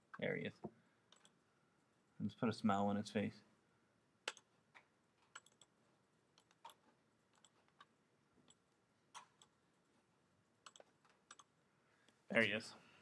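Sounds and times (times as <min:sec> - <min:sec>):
faint computer mouse clicks: 0:10.6 - 0:11.5.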